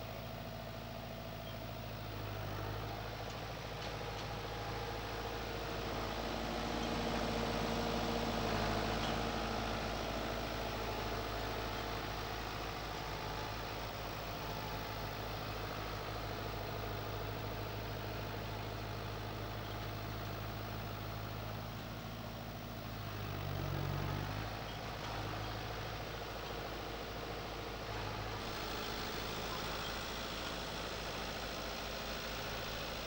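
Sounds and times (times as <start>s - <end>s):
tractor diesel engine running: 0.0s - 33.0s.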